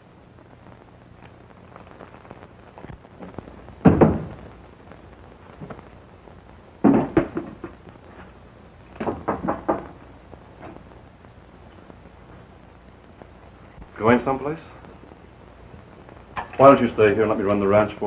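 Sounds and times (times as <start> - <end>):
suitcase knocking on wooden chair: 3.8 - 4.3, 6.8 - 7.7, 9.0 - 10.0.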